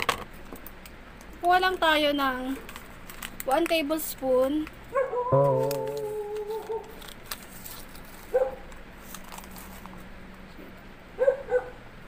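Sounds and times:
foil sachet crinkling: 2.6 - 4.7, 6.4 - 8.3, 9.0 - 10.0
dog barking: 5.0 - 5.3, 8.4 - 8.6, 11.2 - 11.8.

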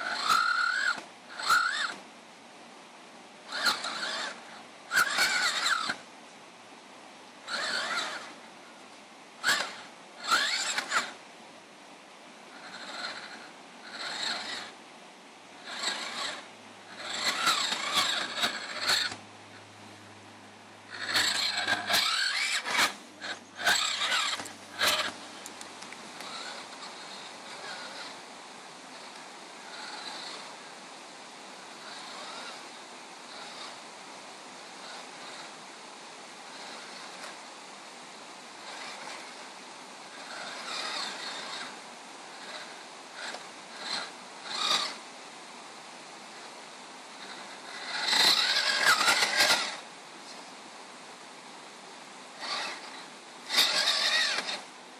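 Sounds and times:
electric motor whining: 0.0 - 2.0, 3.5 - 6.0, 7.4 - 8.4, 9.4 - 11.2, 12.5 - 14.8, 15.6 - 34.0, 38.6 - 45.1, 47.2 - 49.8, 52.4 - 54.7.

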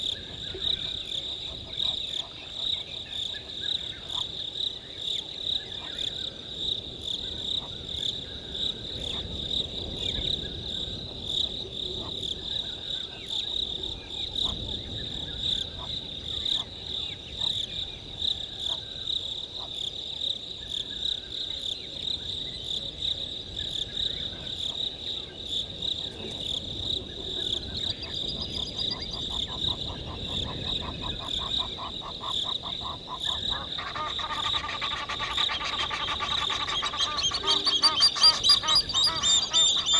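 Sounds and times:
crickets trilling: 0.0 - 39.9
geese honking: 28.9 - 39.9.

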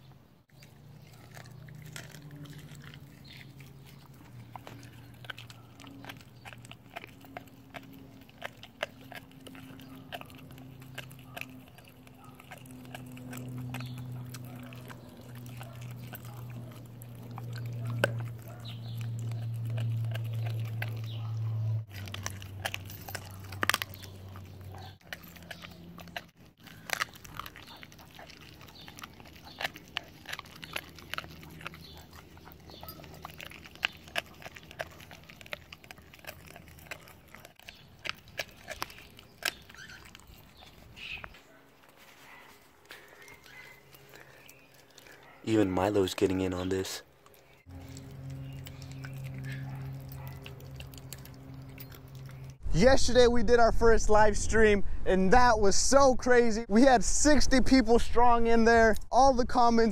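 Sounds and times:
dog gnawing bones: 0.5 - 52.6
low steady rumble: 47.1 - 56.6.

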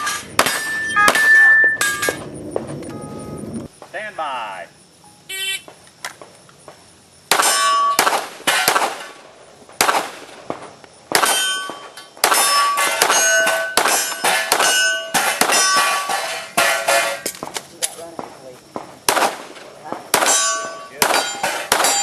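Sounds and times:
bullets clanging on steel targets: 0.0 - 2.3, 7.3 - 9.1, 11.2 - 18.0, 20.1 - 22.0
handgun shots: 7.3 - 9.2, 11.1 - 16.0, 19.1 - 22.0.

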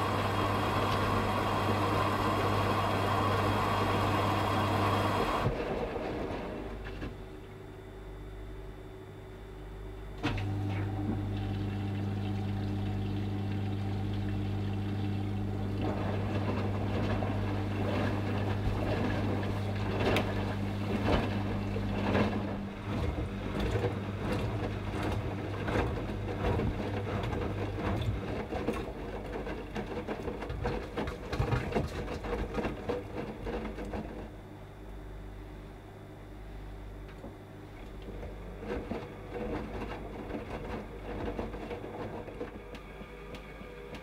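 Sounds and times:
washing machine motor hum: 0.0 - 44.0
wet laundry sloshing and thudding: 15.0 - 34.3, 37.9 - 42.6.

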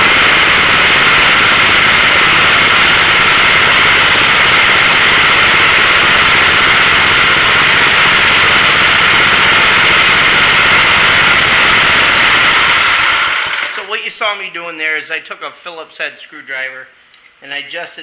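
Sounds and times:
mower engine running steadily: 0.0 - 13.9.

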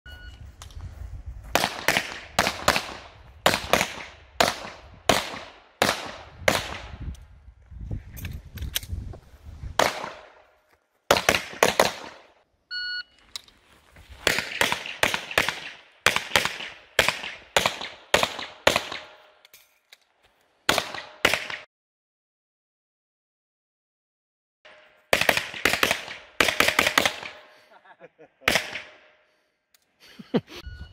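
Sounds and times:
short electronic beep: 0.1 - 0.4, 12.7 - 13.2, 30.6 - 30.9
low wind rumble: 0.4 - 1.6, 6.1 - 9.8.

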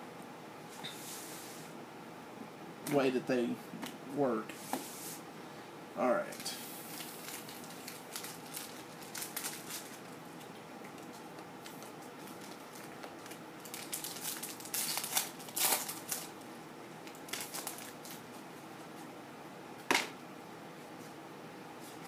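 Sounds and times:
foil wrapper crinkling: 6.4 - 16.4, 17.0 - 18.3.

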